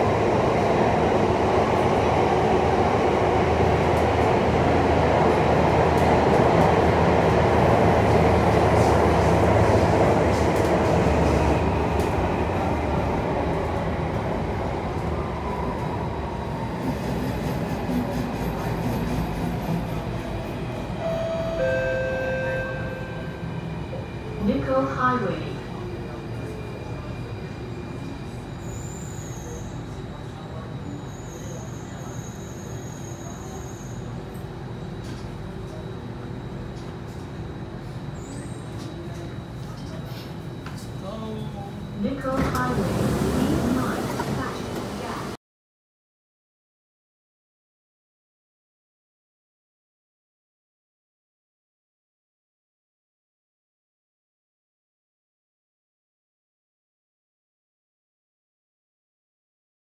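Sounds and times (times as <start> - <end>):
train wheels rumbling on rail: 0.0 - 21.1, 23.5 - 45.4.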